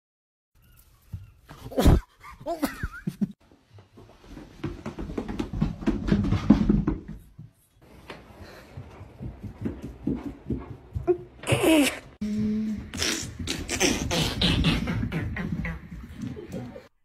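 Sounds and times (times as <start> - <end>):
dog thumping down carpeted stairs: 4.0 - 11.5.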